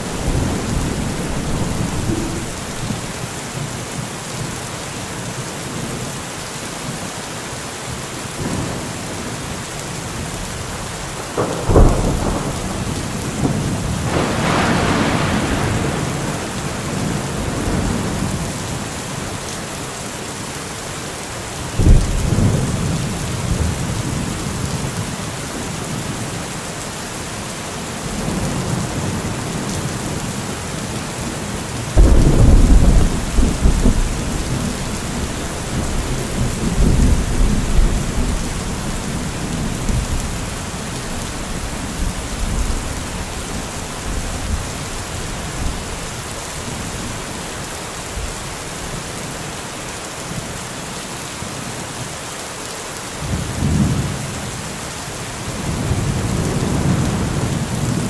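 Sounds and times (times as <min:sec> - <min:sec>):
thunder claps and rumbles: 0:00.0 - 0:03.2, 0:11.1 - 0:18.7, 0:21.8 - 0:26.0, 0:31.9 - 0:46.0, 0:55.5 - 0:58.0
heavy rain: 0:00.0 - 0:58.0.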